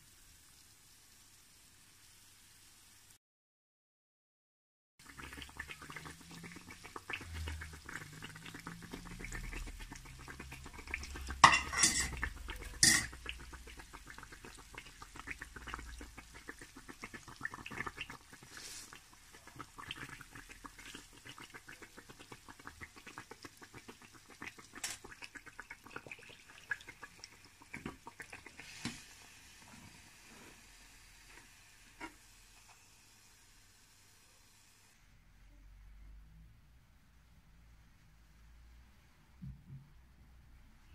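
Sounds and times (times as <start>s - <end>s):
oil sizzling and crackling: 0.0s - 3.2s, 5.0s - 35.0s
metal utensil clacking on pan: 11.4s - 12.2s, 12.8s - 13.2s.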